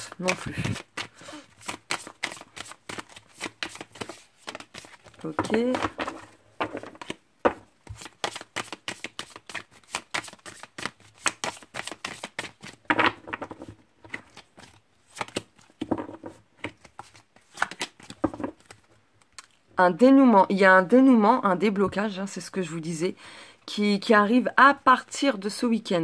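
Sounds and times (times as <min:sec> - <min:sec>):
cards being shuffled: 0:00.0 - 0:18.9.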